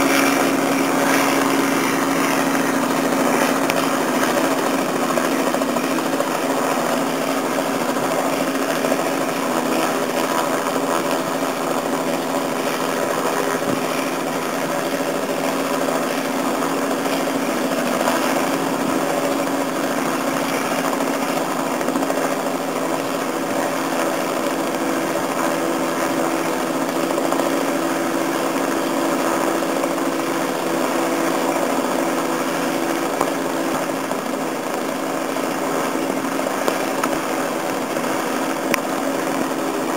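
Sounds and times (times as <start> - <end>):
helicopter hovering drone: 0.0 - 39.9.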